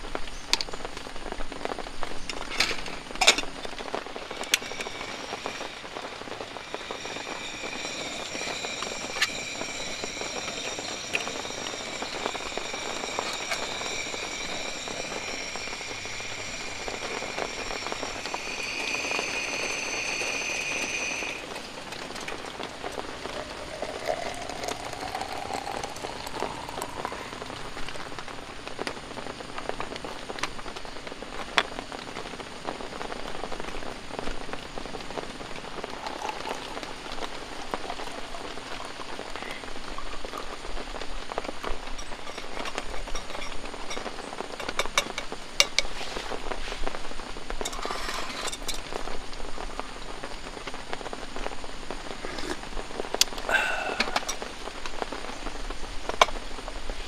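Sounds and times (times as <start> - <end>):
steady rain falling: 0.0 - 57.0
coffee poured into a metal mug: 2.8 - 27.5, 35.5 - 40.6, 41.4 - 46.3, 47.6 - 49.2, 53.5 - 54.4
hot water poured into a glass: 2.8 - 28.0, 34.9 - 49.6, 52.1 - 54.6.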